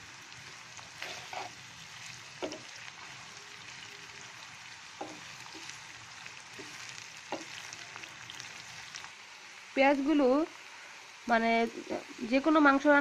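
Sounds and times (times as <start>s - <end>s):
onions sizzling in oil: 0.0s - 13.0s
spatula scraping a pan: 0.8s - 2.8s, 5.0s - 5.7s.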